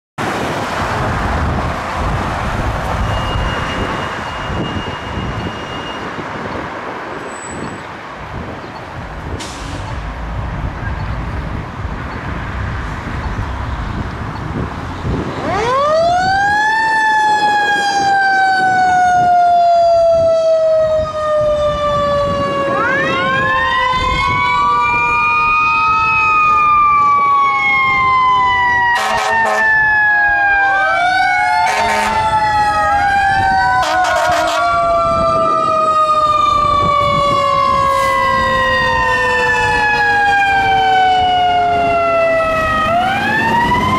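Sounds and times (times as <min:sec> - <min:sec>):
fire truck siren: 0:00.2 - 0:07.8, 0:14.0 - 0:43.9
truck engine and road noise: 0:00.2 - 0:43.9
short horn blasts: 0:29.0 - 0:29.7, 0:31.7 - 0:32.2, 0:33.8 - 0:34.6.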